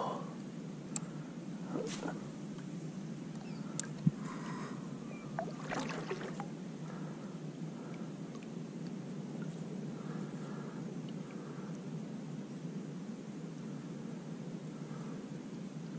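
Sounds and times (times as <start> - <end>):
splashy water drips: 5.4 - 6.5
water swishing along kayak hull: 5.4 - 7.1.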